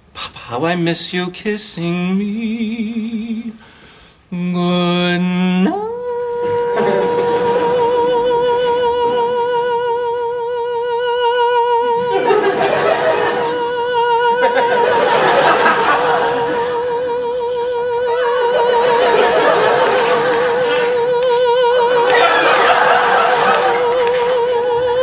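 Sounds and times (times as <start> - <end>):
man singing long vibrato note: 4.3 - 12.5, 13.3 - 25.0
audience laughing: 6.8 - 7.9, 12.0 - 17.1, 18.2 - 21.1, 21.9 - 24.7.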